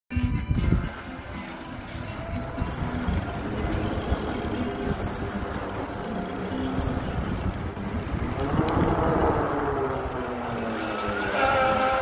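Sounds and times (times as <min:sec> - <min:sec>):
electric bike low rumble: 0:00.4 - 0:12.0
fat tyres rolling over sand: 0:00.9 - 0:12.0
wind rushing over microphone: 0:06.8 - 0:12.0.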